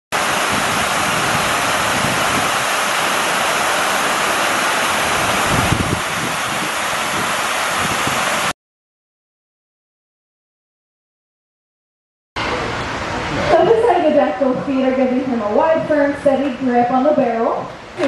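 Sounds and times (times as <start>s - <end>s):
waterfall rushing into pool: 0.1s - 8.6s
wind gusts buffeting microphone: 0.2s - 8.5s.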